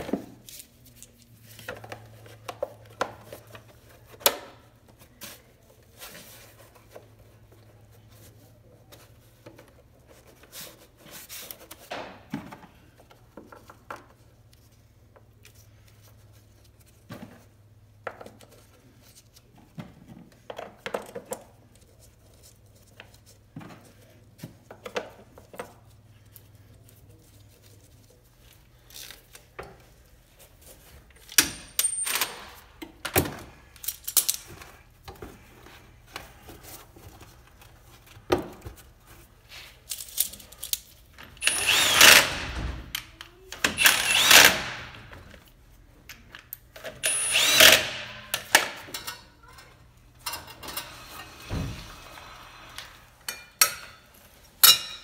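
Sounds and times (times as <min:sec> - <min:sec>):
tools and parts clicking: 0:31.2 - 0:33.0, 0:33.7 - 0:34.7, 0:46.1 - 0:51.0
cordless impact wrench: 0:41.4 - 0:42.8, 0:43.7 - 0:45.0, 0:47.0 - 0:48.7.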